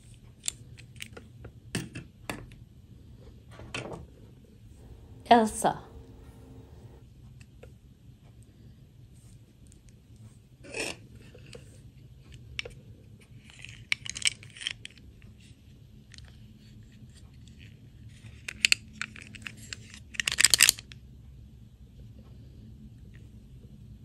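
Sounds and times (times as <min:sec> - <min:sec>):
plastic toys clicking and tapping: 0:12.3 - 0:15.1, 0:18.0 - 0:21.0.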